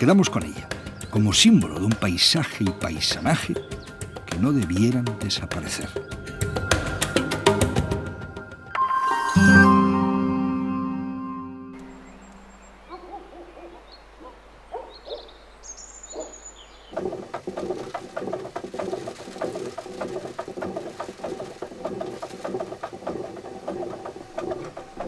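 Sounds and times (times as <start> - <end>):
birds calling faintly: 0.0 - 8.6, 11.7 - 25.0
millstone wooden clatter: 16.9 - 25.0.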